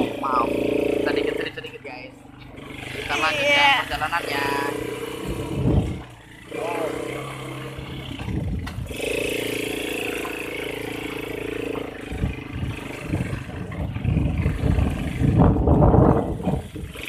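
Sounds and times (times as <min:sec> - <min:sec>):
atv engine under throttle: 0:00.0 - 0:17.0
wind noise: 0:05.2 - 0:06.2, 0:08.1 - 0:09.0, 0:12.0 - 0:17.0.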